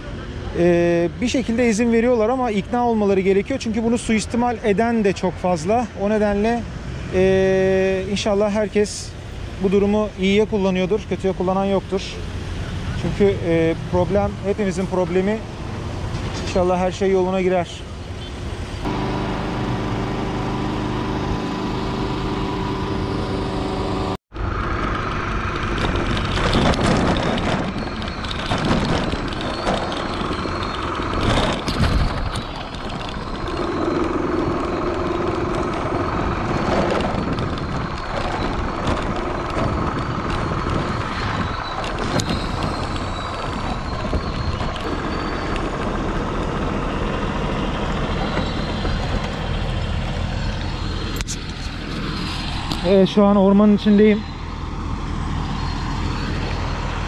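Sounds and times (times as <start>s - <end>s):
engine and road rumble: 0.0s - 57.0s
car engine hum: 17.0s - 57.0s.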